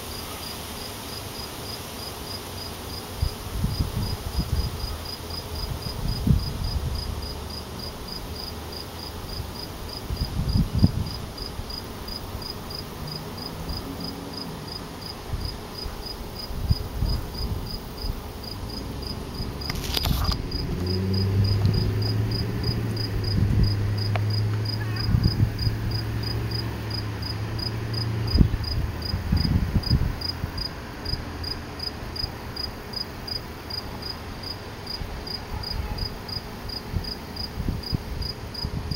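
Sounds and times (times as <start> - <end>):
cricket chirping: 16.4 - 28.8.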